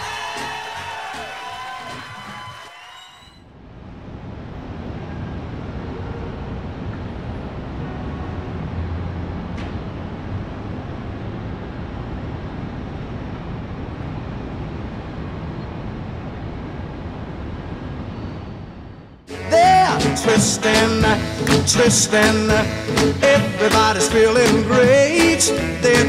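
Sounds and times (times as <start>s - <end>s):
traffic rumble: 3.4s - 23.5s.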